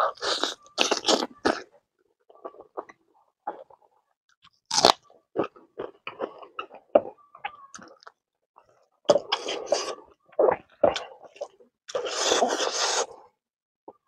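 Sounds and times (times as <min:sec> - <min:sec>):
crunchy bite: 0:00.1 - 0:01.7, 0:04.7 - 0:06.4.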